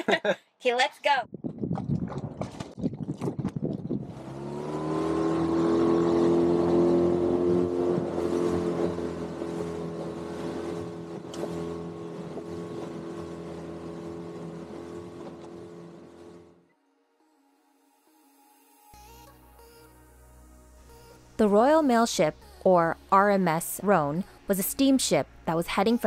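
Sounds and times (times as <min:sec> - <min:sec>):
outboard motor running: 0:01.4 - 0:16.7.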